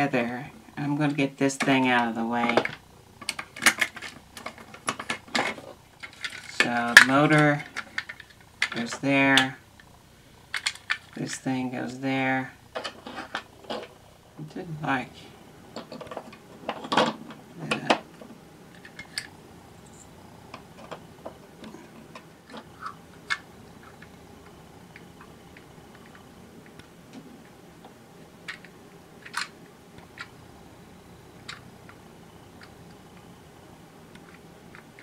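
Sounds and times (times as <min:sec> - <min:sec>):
plastic gears clicking: 0:02.4 - 0:09.9, 0:10.5 - 0:11.2, 0:28.4 - 0:30.3.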